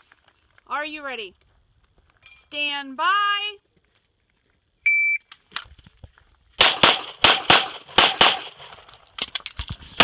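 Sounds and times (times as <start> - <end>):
pistol shots: 6.6 - 8.7.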